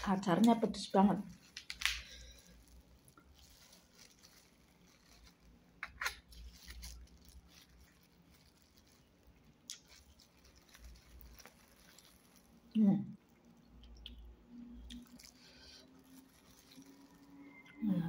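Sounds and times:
food clicks and rustles: 0:00.0 - 0:17.8
chewing: 0:06.5 - 0:17.8.

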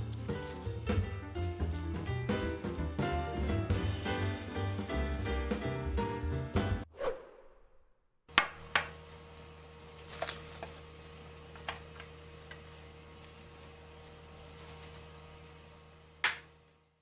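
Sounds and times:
plastic wrap crinkling: 0:00.0 - 0:02.8, 0:09.9 - 0:15.8
background music: 0:00.0 - 0:06.9.

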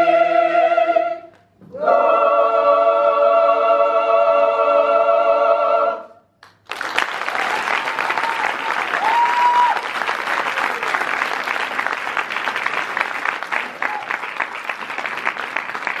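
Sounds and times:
audience applauding: 0:06.4 - 0:16.0.

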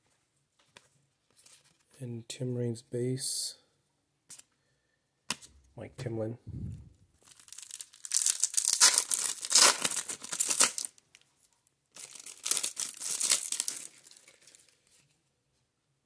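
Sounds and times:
plastic wrapper crackling: 0:07.2 - 0:11.3, 0:12.0 - 0:15.0.

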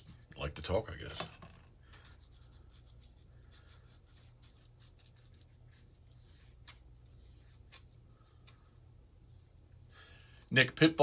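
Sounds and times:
paintbrush scratching and ticking: 0:01.9 - 0:09.9.

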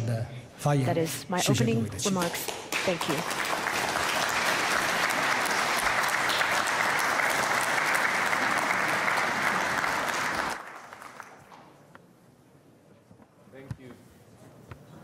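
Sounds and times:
audience applauding: 0:02.1 - 0:11.8.

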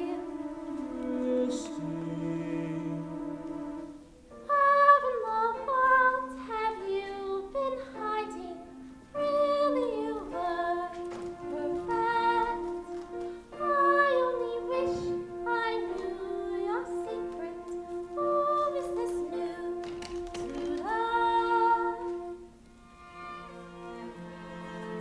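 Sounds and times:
instrumental accompaniment: 0:00.0 - 0:25.0
young female voice singing: 0:04.4 - 0:08.6, 0:09.2 - 0:12.9, 0:13.5 - 0:22.3.

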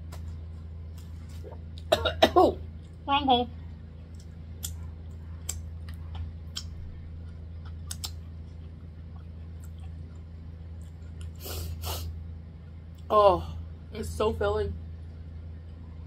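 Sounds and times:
steady low hum: 0:00.0 - 0:16.0
wet mouth clicks and lip smacks: 0:05.4 - 0:06.8, 0:07.6 - 0:08.2.

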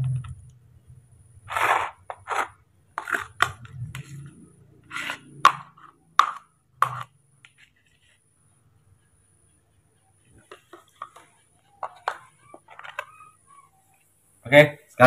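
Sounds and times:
metal spoon scraping porridge: 0:01.4 - 0:06.0.

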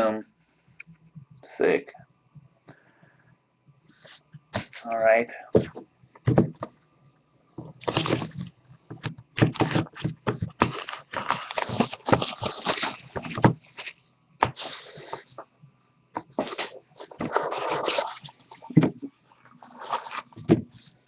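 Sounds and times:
cardboard box rustling and scraping: 0:09.5 - 0:15.4, 0:16.3 - 0:20.9.

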